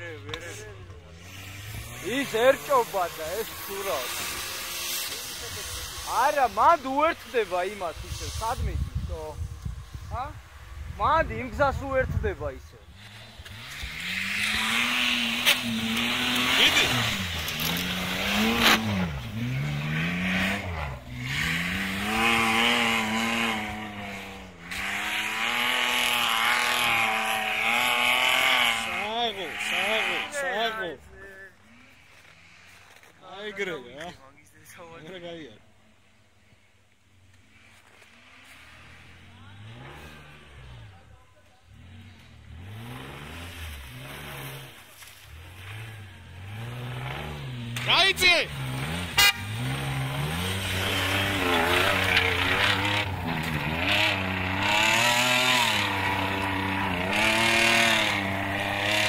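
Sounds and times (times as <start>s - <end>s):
off-road vehicle engine revving: 0.0s - 34.2s, 37.5s - 59.0s
tyres churning through snow: 0.0s - 34.9s, 37.3s - 59.0s.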